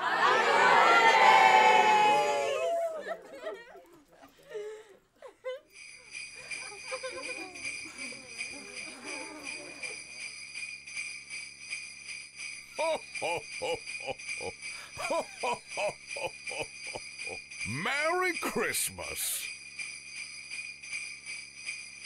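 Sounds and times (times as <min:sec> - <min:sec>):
sleigh bells jingling: 0:05.7 - 0:22.0
wavering voice-like sounds: 0:17.3 - 0:19.5.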